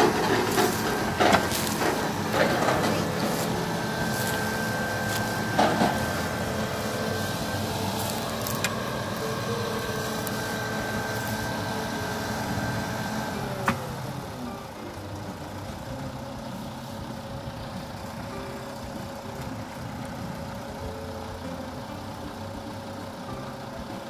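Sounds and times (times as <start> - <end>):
high whine: 0.0 - 22.3
diesel engine idling: 0.0 - 24.0.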